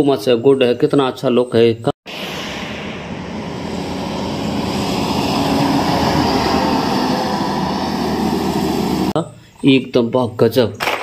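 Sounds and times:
highway traffic rushing: 2.1s - 9.2s.

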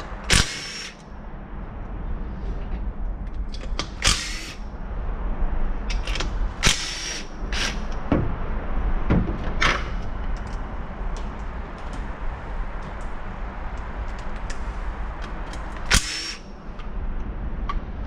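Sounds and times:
cordless drill spinning bolts: 0.3s - 1.0s, 4.0s - 4.6s, 6.1s - 7.8s, 15.9s - 16.4s.

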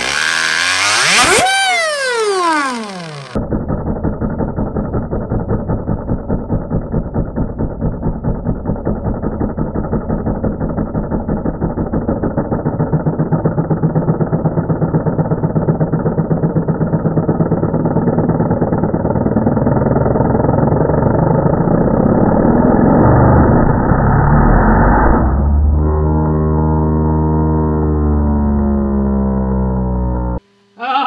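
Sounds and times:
plastic engine model rattling: 1.3s - 20.9s.

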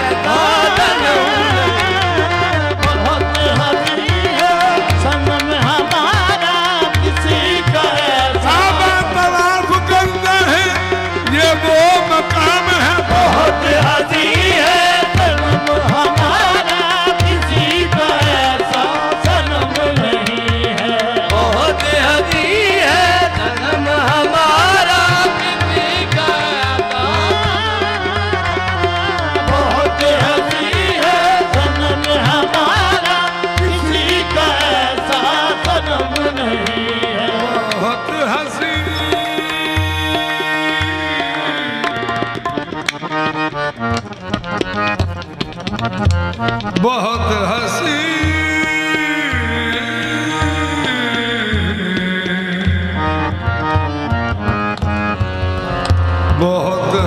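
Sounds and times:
harmonium melody: 0.0s - 57.0s
tabla drumming: 0.0s - 57.0s.

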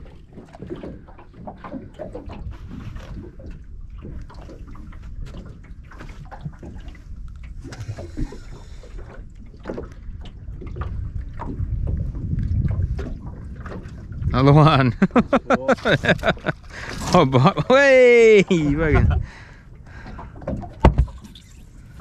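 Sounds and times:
small waves lapping against hull: 0.0s - 22.0s
steady low rumble: 10.0s - 20.4s.

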